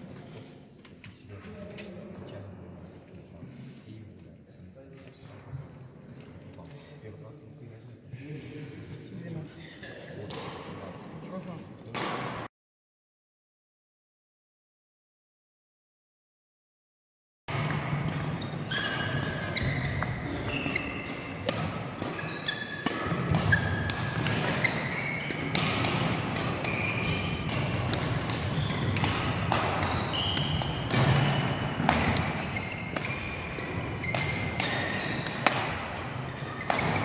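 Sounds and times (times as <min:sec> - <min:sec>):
racket hitting shuttlecock: 0:11.9 - 0:12.4, 0:17.5 - 0:37.0
shoes squeaking on wooden floor: 0:18.3 - 0:21.4, 0:22.1 - 0:25.6, 0:26.5 - 0:27.5, 0:29.7 - 0:35.4.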